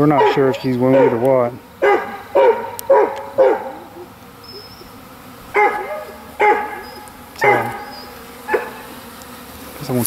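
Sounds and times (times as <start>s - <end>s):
dog barking: 0.1s - 4.1s, 5.5s - 8.9s.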